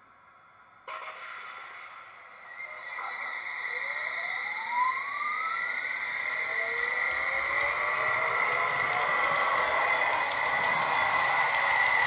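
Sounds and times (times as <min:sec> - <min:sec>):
electric motor whine rising: 0:02.7 - 0:12.0.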